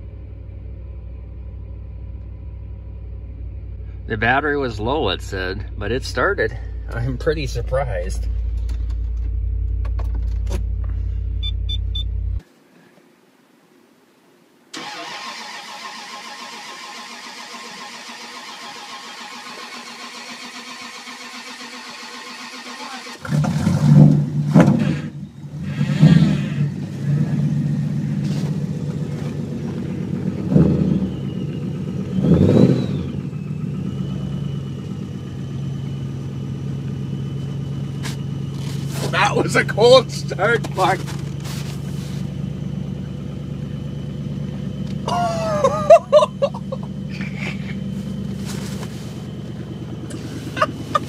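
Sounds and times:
engine cold starting: 14.7 - 26.7
engine fast idle: 14.8 - 23.3, 31.0 - 51.0.

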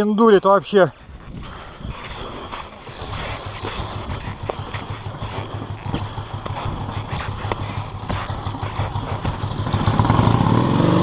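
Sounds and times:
motorcycle engine running: 2.9 - 11.0.

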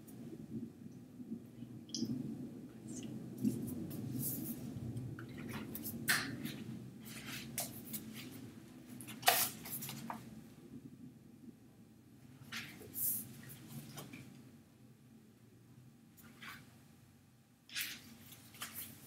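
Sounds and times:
paper rustling: 5.3 - 10.3, 12.5 - 14.3, 17.7 - 19.0.

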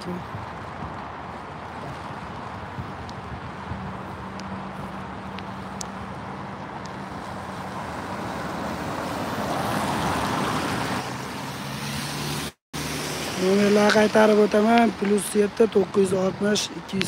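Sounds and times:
tyres hissing on wet road: 0.0 - 16.9.

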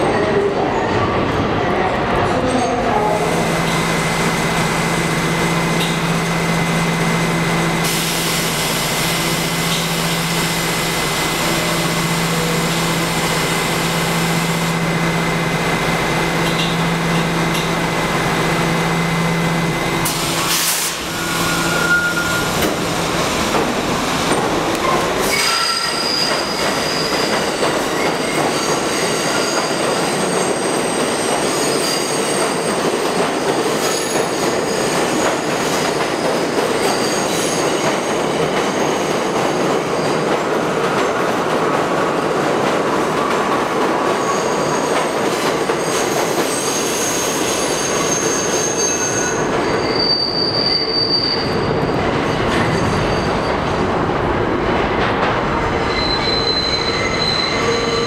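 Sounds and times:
subway train hum and rumble: 0.0 - 58.0
train wheel squeal: 21.2 - 22.8, 25.2 - 40.3, 44.1 - 53.8, 55.8 - 58.0.

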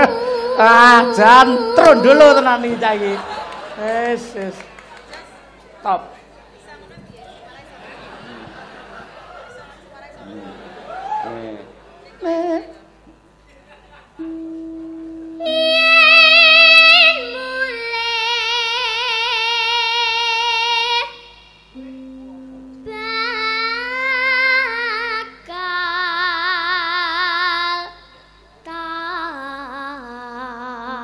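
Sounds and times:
girl singing solo with vibrato: 0.0 - 2.6, 15.3 - 21.4, 22.8 - 28.1, 28.7 - 31.0
low held note: 14.2 - 18.1, 21.1 - 25.8.

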